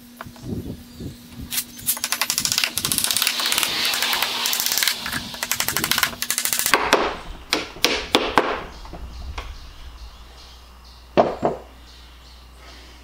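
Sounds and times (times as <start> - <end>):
hammer tapping wooden plugs: 5.4 - 8.6.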